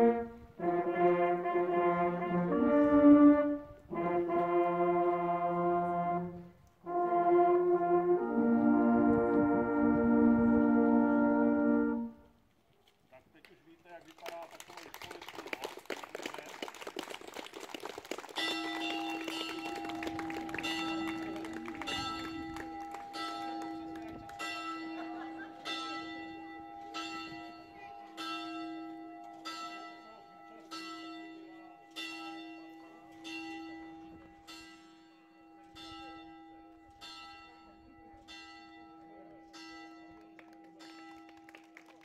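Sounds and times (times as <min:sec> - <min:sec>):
bell tolling: 0:18.4 - 0:41.4.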